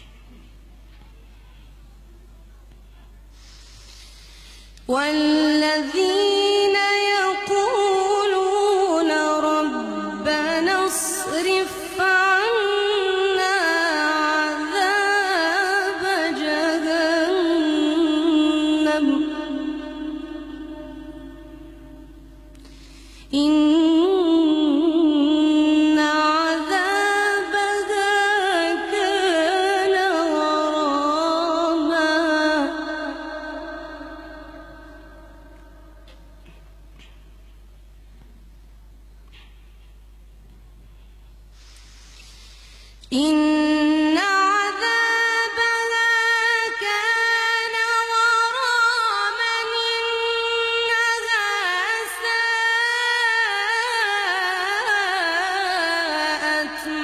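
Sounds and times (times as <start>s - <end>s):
woman chanting melodically: 4.9s - 22.5s, 23.3s - 36.6s, 43.1s - 57.0s.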